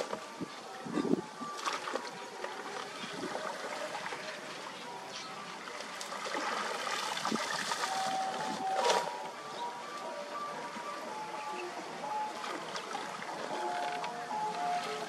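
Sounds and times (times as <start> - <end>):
water splashing and dripping: 1.4 - 9.4, 12.0 - 15.0.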